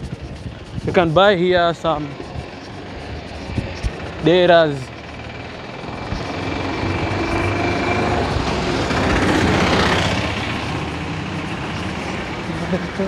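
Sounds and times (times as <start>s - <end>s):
vehicle passing by: 0.0s - 13.0s.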